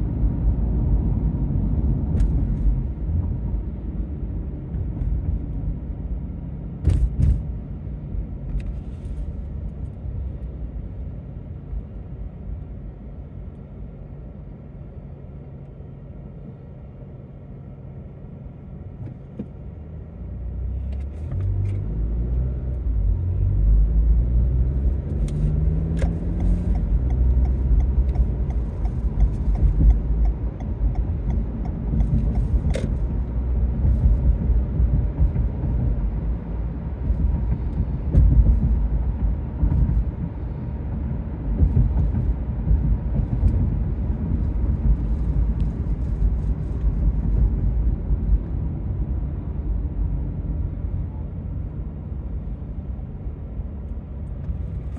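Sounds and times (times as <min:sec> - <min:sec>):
tyre road noise: 0:00.0 - 0:54.9
car engine accelerating: 0:19.7 - 0:54.9.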